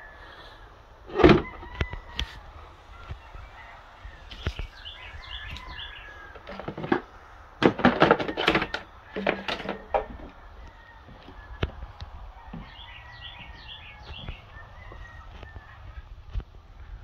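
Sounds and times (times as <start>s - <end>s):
faint bird chirps: 1.8s - 6.6s
plastic trays clattering: 5.3s - 10.4s.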